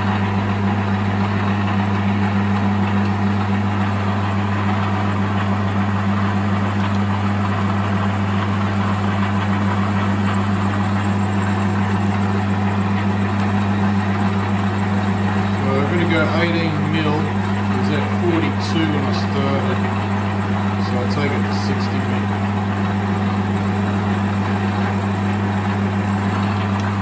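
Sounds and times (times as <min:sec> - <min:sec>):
metal lathe humming: 0:00.0 - 0:27.0
drill boring into metal: 0:05.9 - 0:27.0.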